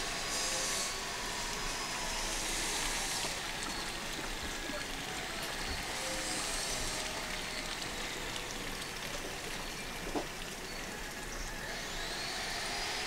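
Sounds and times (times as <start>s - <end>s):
water hissing: 0.0s - 8.4s.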